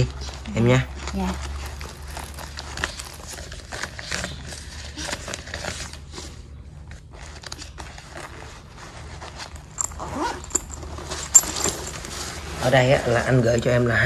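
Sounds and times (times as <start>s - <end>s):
banknotes rustling and crinkling: 0.0s - 14.0s.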